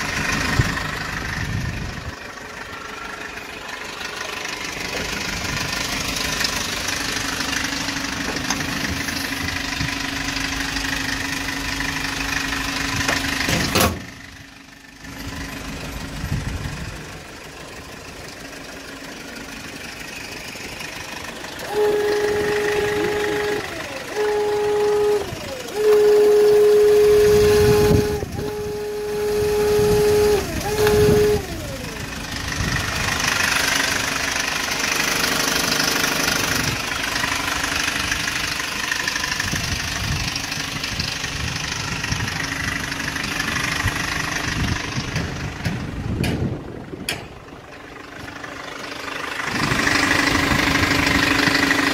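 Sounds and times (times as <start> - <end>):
truck engine idling: 0.0 - 51.9
loud steady whine: 21.5 - 34.4.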